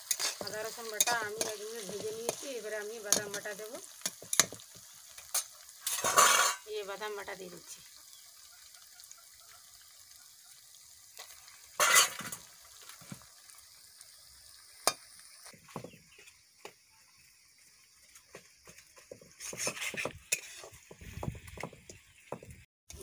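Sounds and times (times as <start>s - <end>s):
paste sizzling in oil: 0.0s - 23.0s
wooden spatula scraping pan: 5.4s - 6.6s, 18.9s - 22.6s.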